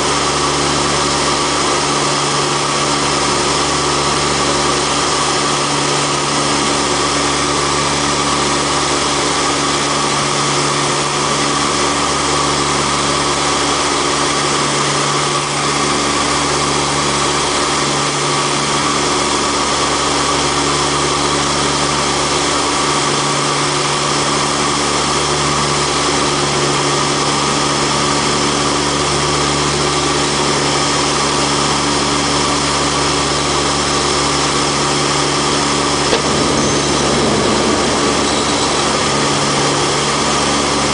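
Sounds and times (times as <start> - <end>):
turboprop engines droning: 0.0 - 40.9.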